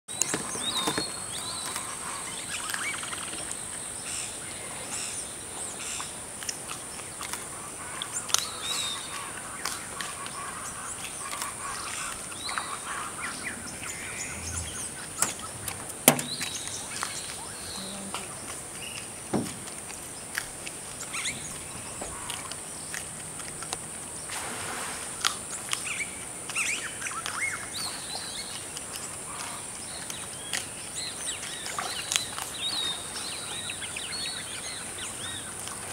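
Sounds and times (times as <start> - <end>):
birds chirping: 6.8 - 24.3, 25.5 - 35.8
insect drone: 10.6 - 19.0.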